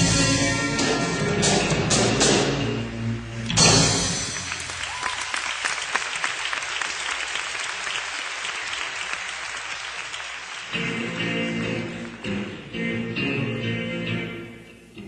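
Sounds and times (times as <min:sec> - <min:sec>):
band playing: 0:00.0 - 0:04.8, 0:10.7 - 0:15.0
audience applauding: 0:04.2 - 0:12.2.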